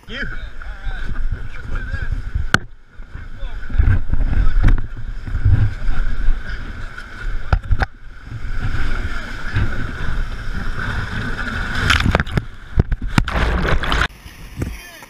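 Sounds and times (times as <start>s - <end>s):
wind buffeting microphone: 0.0s - 14.8s
wave splashing over raft: 0.0s - 15.0s.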